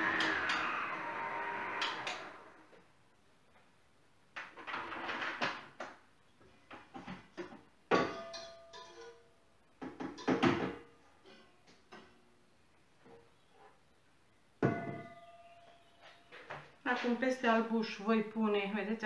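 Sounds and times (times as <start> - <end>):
kitchenware clattering: 6.8 - 12.2, 14.6 - 17.2
metal bowl ringing: 8.0 - 9.2, 14.7 - 16.0.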